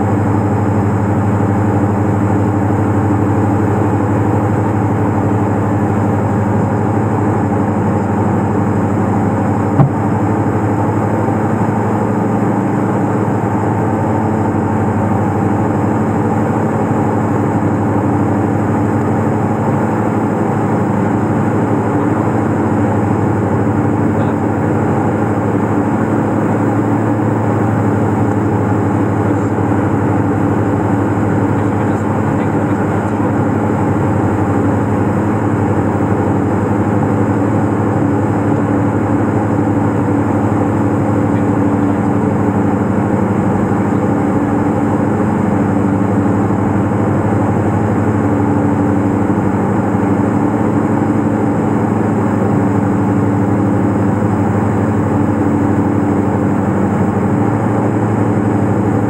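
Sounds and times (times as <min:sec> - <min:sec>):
aircraft engines droning in cabin: 0:00.0 - 0:59.0
low hum: 0:07.8 - 0:11.0.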